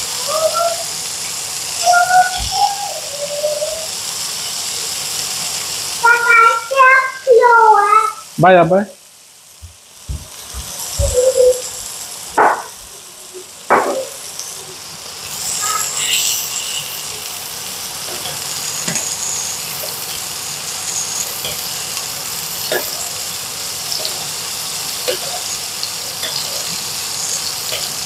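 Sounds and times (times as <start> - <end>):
steaks sizzling in a frying pan: 0.0 - 28.0
metal spoon basting: 23.9 - 28.0.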